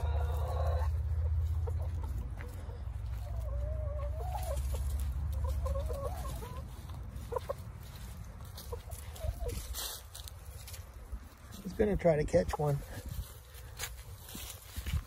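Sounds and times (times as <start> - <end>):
hens calling: 0.0 - 15.0
hens clucking: 0.0 - 15.0.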